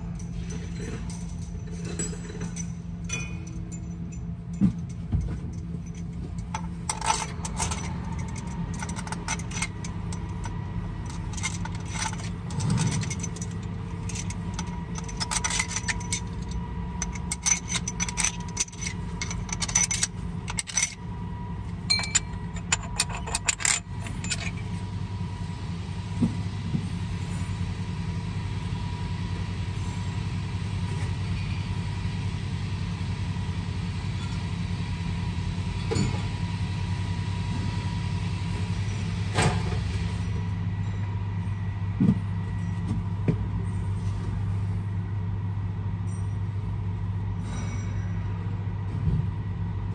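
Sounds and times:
metallic tool clinks and taps: 0:02.5 - 0:21.0, 0:21.9 - 0:24.5
diesel engine idling: 0:05.6 - 0:35.8.

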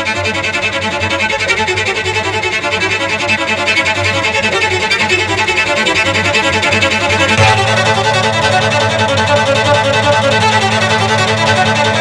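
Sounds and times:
cello riff: 0:07.3 - 0:12.0
steady low bass: 0:07.4 - 0:12.0.

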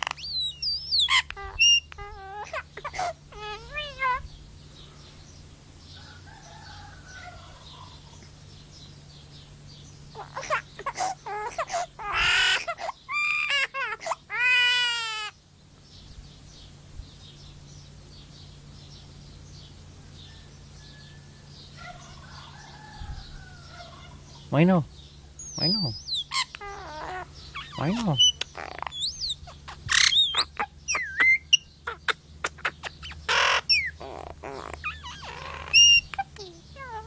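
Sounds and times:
myna mimicking baby crying: 0:00.0 - 0:04.3, 0:10.1 - 0:15.4, 0:25.6 - 0:37.0.

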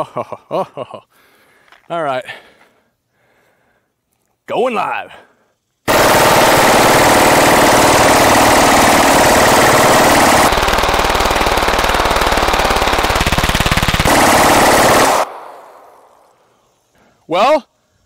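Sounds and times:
pistol firing full-auto burst: 0:05.9 - 0:16.2.

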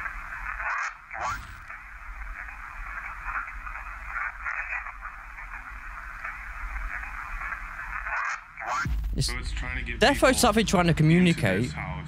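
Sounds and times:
radio static hiss: 0:00.0 - 0:10.6.

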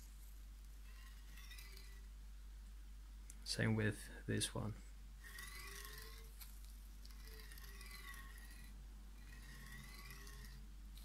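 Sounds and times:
faint whir of rolling carriage: 0:03.6 - 0:11.0.

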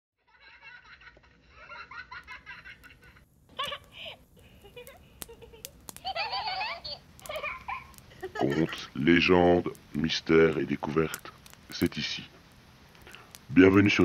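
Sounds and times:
high-pitched giggling: 0:00.3 - 0:08.8.

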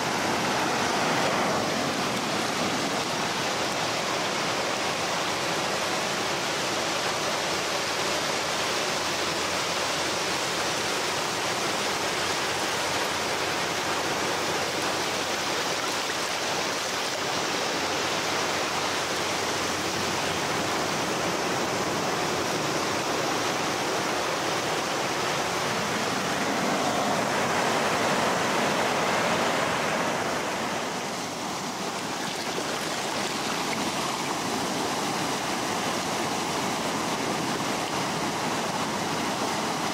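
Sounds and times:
small waves lapping on sand: 0:00.0 - 0:39.9.

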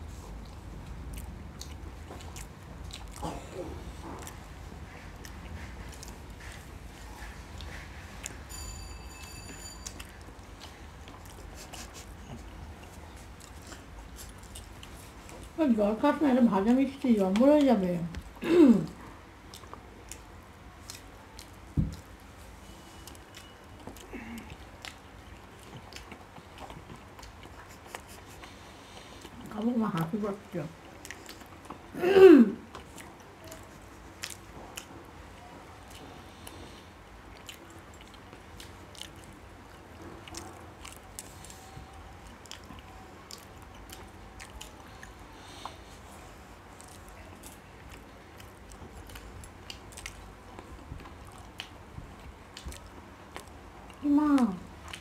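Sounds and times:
people chewing: 0:00.0 - 0:55.0
faint clicks and smacks: 0:16.9 - 0:22.2, 0:46.7 - 0:55.0.

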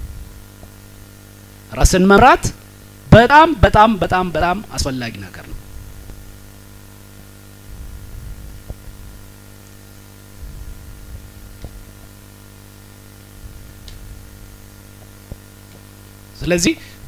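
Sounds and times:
electrical mains hum: 0:00.0 - 0:17.0
faint recording hiss: 0:00.0 - 0:17.0
soft low rumbles: 0:07.6 - 0:09.4, 0:10.3 - 0:12.3, 0:13.2 - 0:15.6.

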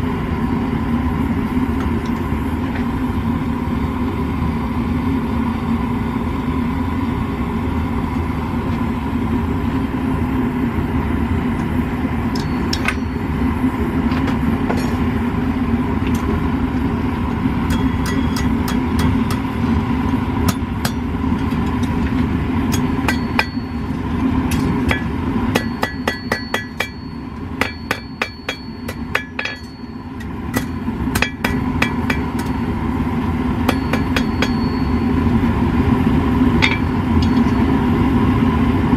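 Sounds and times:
gas forge burner roar: 0:00.0 - 0:38.9
hammer striking steel on anvil: 0:12.3 - 0:13.4, 0:14.6 - 0:15.2, 0:17.6 - 0:19.6, 0:20.4 - 0:22.0, 0:22.7 - 0:32.7, 0:33.6 - 0:35.2, 0:36.6 - 0:37.7.

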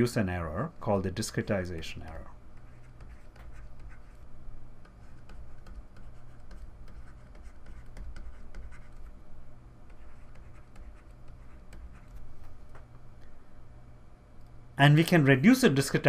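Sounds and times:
steady low hum: 0:00.0 - 0:16.0
stylus scratching and tapping: 0:01.3 - 0:13.0.

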